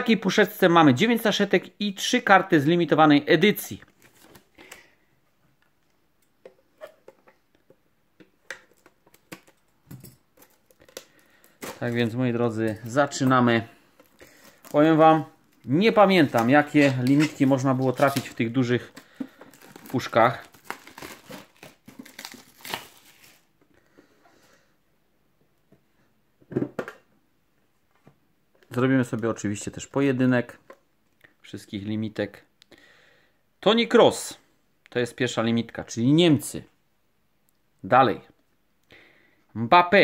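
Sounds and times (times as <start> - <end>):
plastic wrap crinkling: 10.3 - 23.6.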